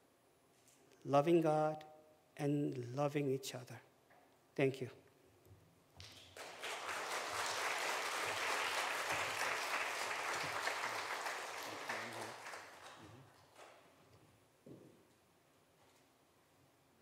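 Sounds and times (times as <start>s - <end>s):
congregation applauding: 6.0s - 13.8s.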